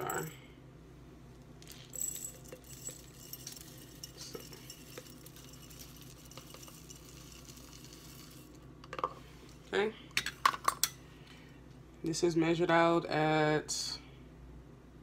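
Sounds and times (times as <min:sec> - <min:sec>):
small clinks against glass: 0:01.6 - 0:08.4
oats pattering into a jar: 0:01.6 - 0:08.6.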